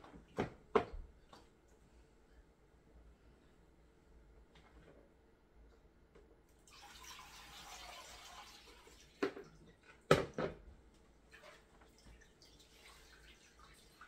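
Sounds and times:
liquid trickling through sieve: 6.6s - 9.9s, 11.3s - 14.0s.

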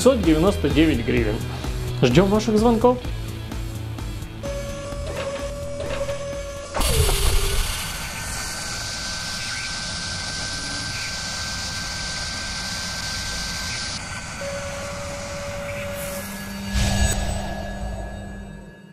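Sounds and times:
brief steady tone: 4.5s - 7.9s, 14.4s - 18.9s
whirring machining hiss: 6.6s - 17.5s
loud hit: 16.6s - 18.9s.

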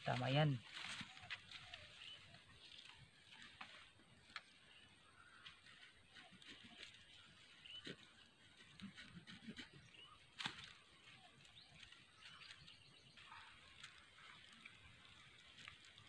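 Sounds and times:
dry grass and twigs rustling: 0.0s - 16.0s
twig snapping: 10.4s - 10.8s.

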